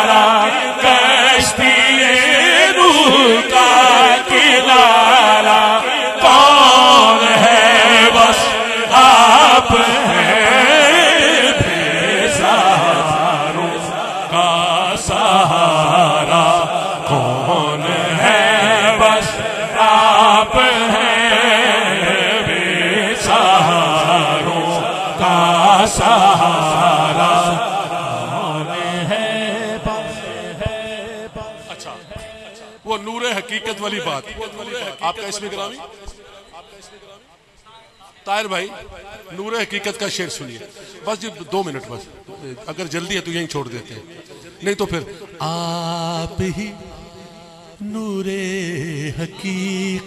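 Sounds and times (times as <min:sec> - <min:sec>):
low sustained chorus of voices: 0:00.0 - 0:37.1
man chanting melodic lines: 0:22.8 - 0:50.0.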